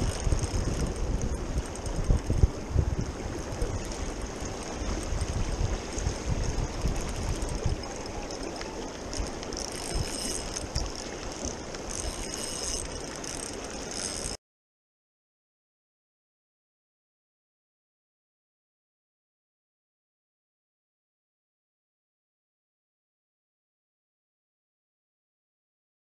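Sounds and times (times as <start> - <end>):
wind buffeting the microphone: 0.0 - 13.2
river water rushing: 0.0 - 14.3
fishing reel whirring and ticking: 0.0 - 14.4.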